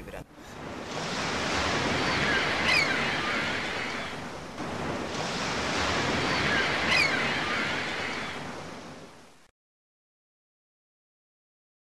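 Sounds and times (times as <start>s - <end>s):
sea waves washing on shore: 0.0s - 9.5s.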